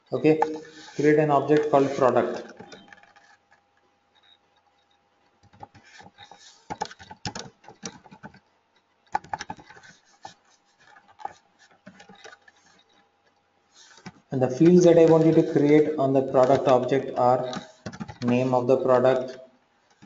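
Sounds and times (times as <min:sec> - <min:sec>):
typing on computer keyboard: 0:05.4 - 0:08.5, 0:09.1 - 0:13.0, 0:13.9 - 0:18.5.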